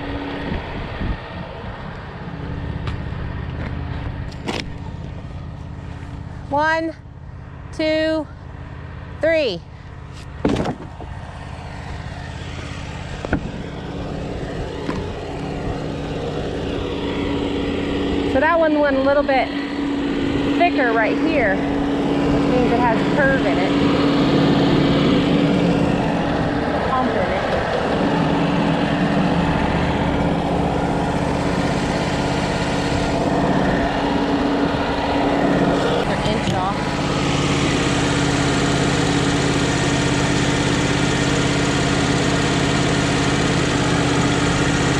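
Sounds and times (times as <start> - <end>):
sawmill engine running: 0.0 - 44.9
wooden slab clattering onto pile: 10.4 - 10.9.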